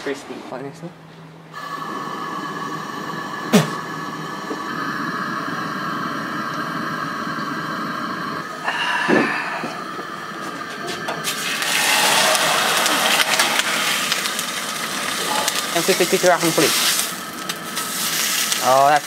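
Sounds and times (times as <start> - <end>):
gas burner hissing: 1.5 - 19.0
match striking: 11.4 - 18.7.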